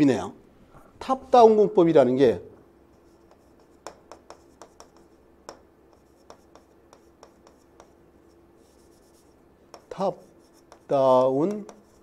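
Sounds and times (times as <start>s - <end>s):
chalk scratching stroke: 2.9s - 12.0s
chalk tapping on chalkboard: 2.9s - 12.0s.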